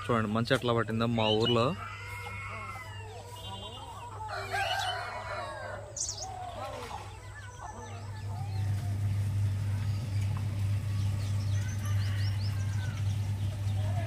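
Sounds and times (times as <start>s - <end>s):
chickens calling: 0.0s - 14.0s
small birds chirping: 0.0s - 14.0s
steady low hum: 5.5s - 14.0s.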